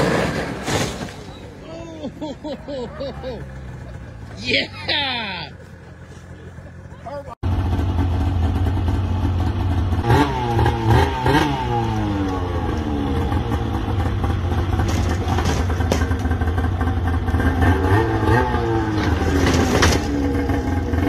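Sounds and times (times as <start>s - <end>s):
snowmobile engine revving: 1.7s - 21.0s
knocks and clanks on ramp: 14.6s - 16.6s, 18.8s - 20.6s.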